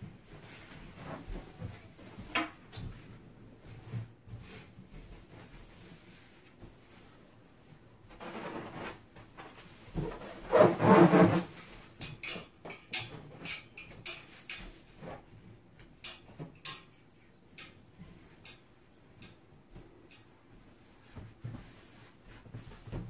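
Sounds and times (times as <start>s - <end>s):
balloons rubbing and squeaking: 8.1s - 9.1s, 10.0s - 11.7s.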